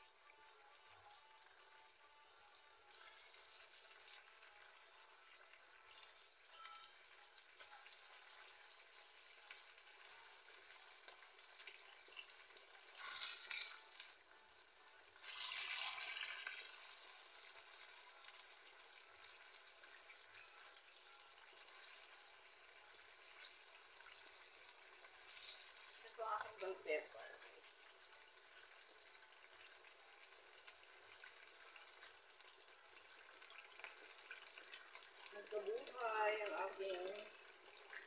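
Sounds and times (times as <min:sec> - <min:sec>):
food sizzling in a pan: 0:00.0 - 0:38.0.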